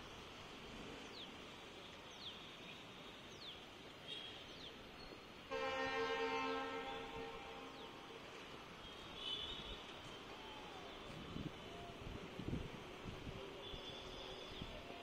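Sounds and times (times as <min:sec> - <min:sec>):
faint background noise: 0:00.0 - 0:15.0
multi-tone horn blast: 0:05.5 - 0:07.8.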